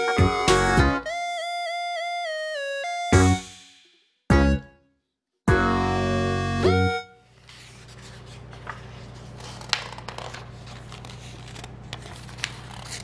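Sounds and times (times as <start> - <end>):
paper pages rustling: 7.2 - 13.0.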